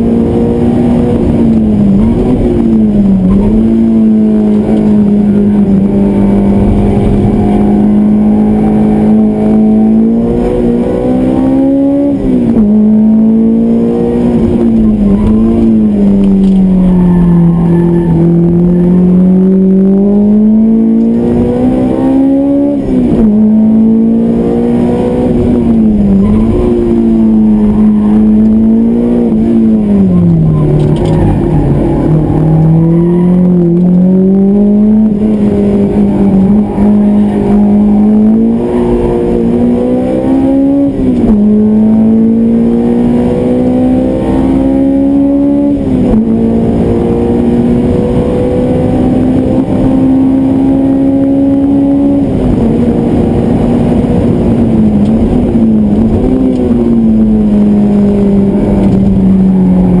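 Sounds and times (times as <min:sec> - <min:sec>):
car engine revving at full throttle: 0:00.0 - 1:00.0.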